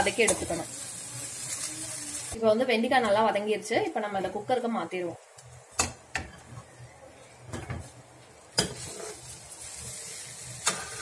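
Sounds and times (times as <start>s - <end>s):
soft sizzle from hot pan: 0.0s - 6.3s, 8.4s - 11.0s
metal spatula scraping metal pan: 8.6s - 9.3s, 10.0s - 11.0s.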